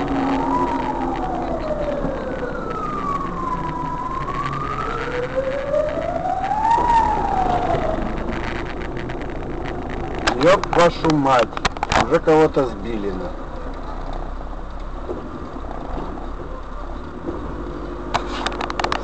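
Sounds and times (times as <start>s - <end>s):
siren wailing: 0.0s - 11.4s
car engine and road noise: 0.0s - 19.0s.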